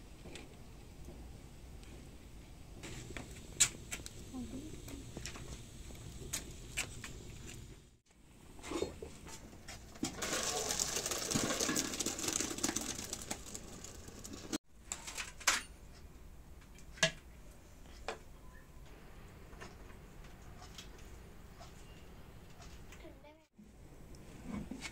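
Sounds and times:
water pouring into colander: 10.0 - 14.6.

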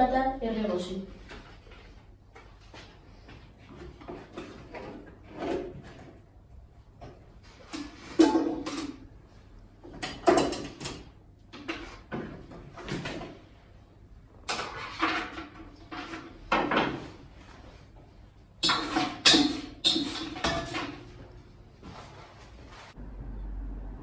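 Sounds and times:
kitchen utensils clattering: 7.5 - 9.1, 9.9 - 13.4, 14.4 - 17.2, 18.6 - 21.4.

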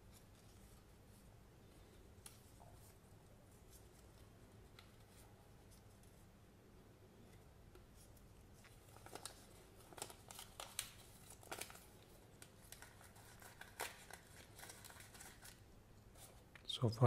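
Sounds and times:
paper rustling and crinkling: 7.9 - 16.4.

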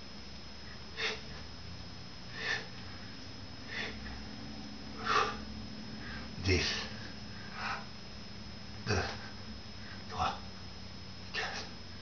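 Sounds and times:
man breathing sharply: 0.9 - 1.4, 2.3 - 4.3, 5.0 - 8.0.

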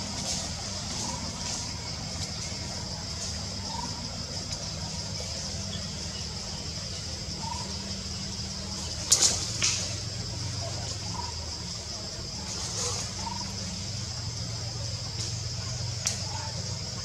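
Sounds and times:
sharp snaps: 16.0 - 16.3.

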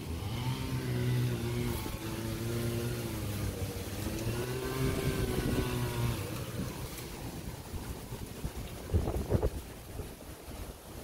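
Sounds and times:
chainsaw cutting wood: 0.0 - 7.2.

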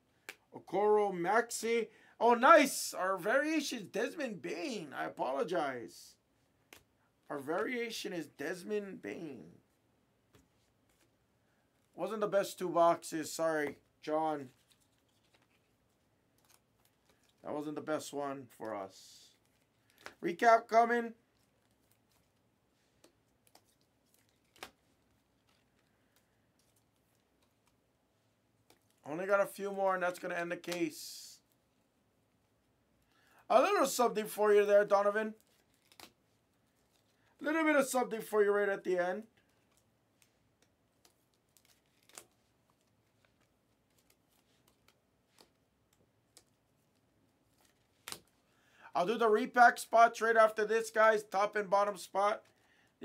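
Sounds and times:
trading cards clicking and rustling: 13.6 - 17.4, 19.3 - 20.4, 21.2 - 27.8, 35.3 - 37.3, 39.4 - 48.4.

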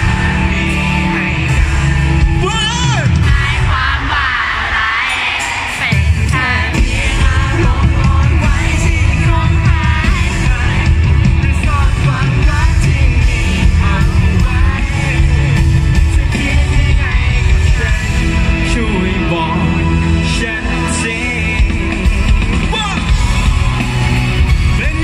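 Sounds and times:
live band playing: 0.0 - 25.0
person singing: 5.8 - 25.0.

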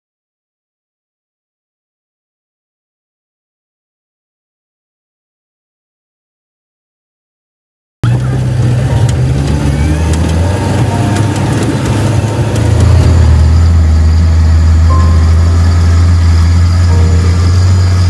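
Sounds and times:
vehicle engine droning: 8.0 - 18.0.

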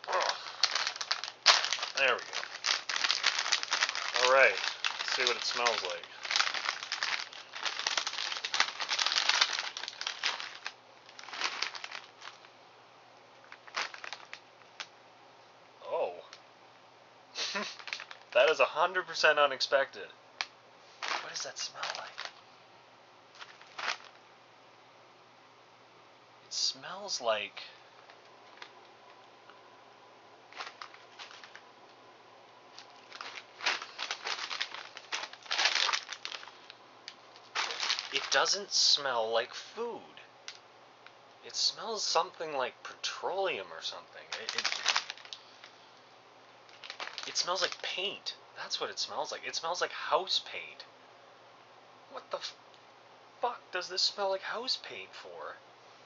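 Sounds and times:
snack bag crinkling: 0.0 - 12.5, 13.4 - 14.9, 17.4 - 18.4, 21.0 - 22.4, 23.3 - 24.2, 30.5 - 31.7, 32.7 - 38.7, 44.2 - 45.8, 46.7 - 47.9.

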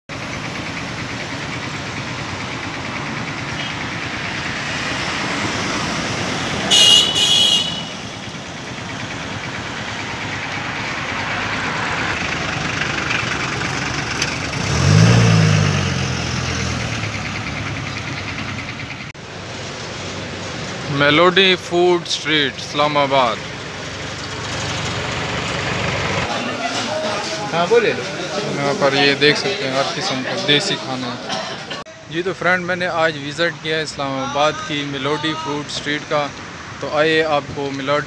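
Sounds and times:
road traffic: 0.0 - 38.0
car horn toots: 6.6 - 8.3.

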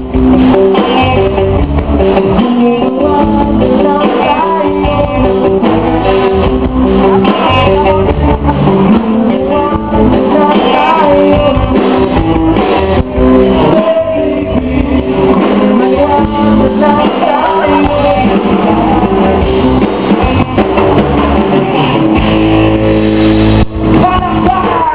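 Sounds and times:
person singing: 0.0 - 12.6, 13.4 - 22.0, 23.9 - 24.9
bass: 0.0 - 24.9
electric guitar: 0.0 - 24.9.

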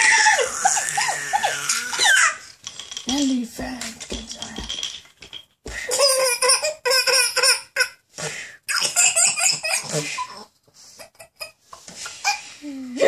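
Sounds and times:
toddler laughing: 0.0 - 2.4, 5.9 - 7.9, 8.7 - 10.4.

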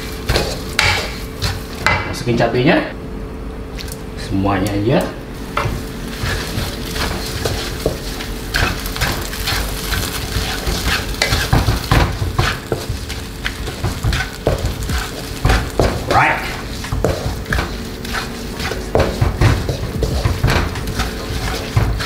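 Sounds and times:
chilies sizzling in hot oil: 0.0 - 1.9, 5.4 - 22.0
spatula scraping pan: 5.4 - 22.0.

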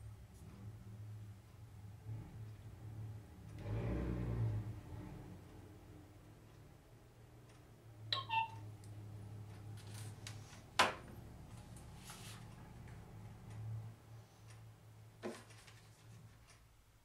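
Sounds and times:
descending electronic beeps: 8.2 - 8.6.

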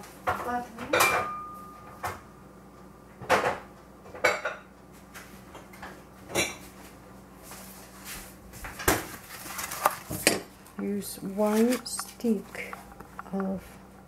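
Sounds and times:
dishes and utensils clinking: 0.3 - 2.2.

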